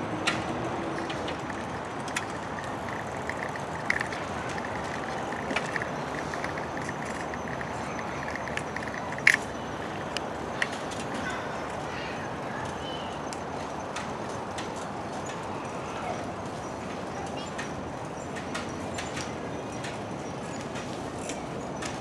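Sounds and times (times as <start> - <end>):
outdoor background noise: 0.0 - 22.0
sharp clicks: 0.3 - 11.2
light ticking: 0.9 - 11.8.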